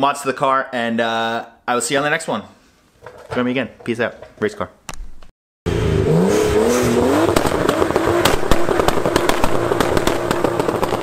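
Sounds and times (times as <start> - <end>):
car engine revving high: 5.7 - 11.0
exhaust crackle and pops: 5.7 - 11.0
tyres spinning: 6.6 - 11.0.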